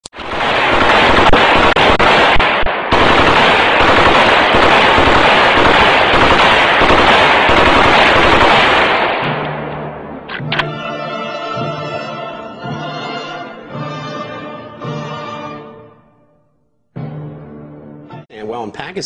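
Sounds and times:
automatic rifle fire: 0:00.2 - 0:09.8.

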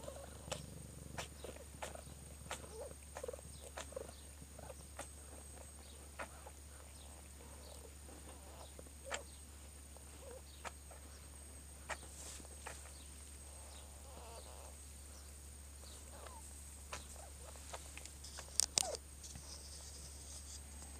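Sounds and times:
kittens squeaking and clicking: 0:00.0 - 0:09.3, 0:16.2 - 0:19.9
steady low hum: 0:00.0 - 0:20.9.

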